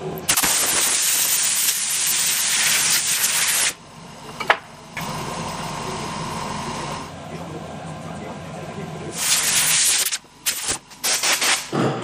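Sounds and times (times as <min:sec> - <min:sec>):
loud steady hiss: 0:00.3 - 0:03.8, 0:09.1 - 0:11.7.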